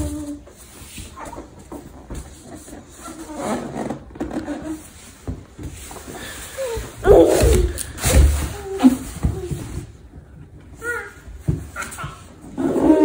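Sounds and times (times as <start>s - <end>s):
toddler squealing and giggling: 7.0s - 7.8s.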